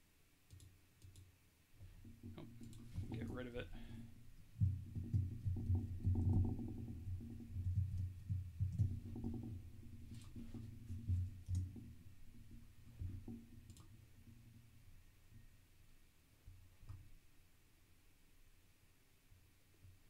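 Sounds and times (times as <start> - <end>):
keyboard typing: 0.5 - 1.3, 2.0 - 11.8, 13.6 - 13.9.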